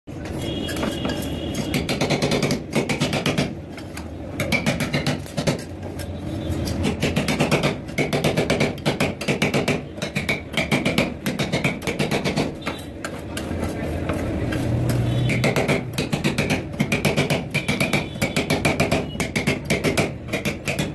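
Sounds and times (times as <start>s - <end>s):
metal spatulas clacking on steel plate: 0.6s - 20.9s.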